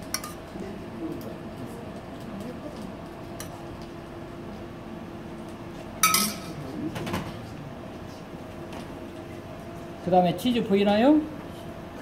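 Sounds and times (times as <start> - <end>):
steady background hum: 0.0 - 12.0
kitchenware clinking: 6.0 - 6.6.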